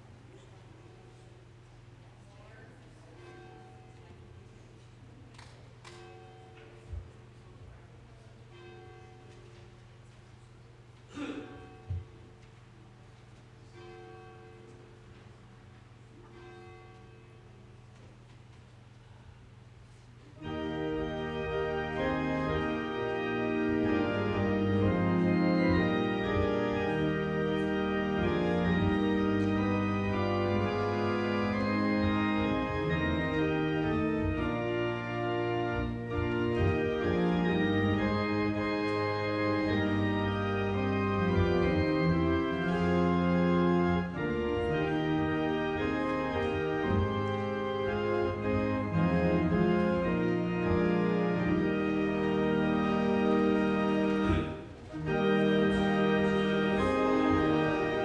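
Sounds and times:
church organ playing chords: 13.6s - 18.1s, 20.4s - 58.0s.

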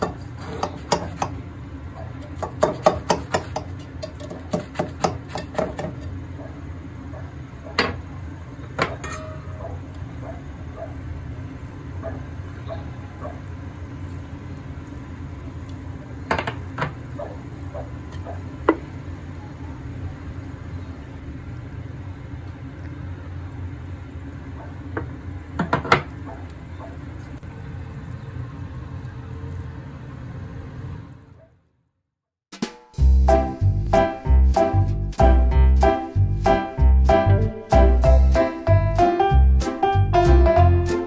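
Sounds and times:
low kitchen hum: 0.0s - 31.9s.

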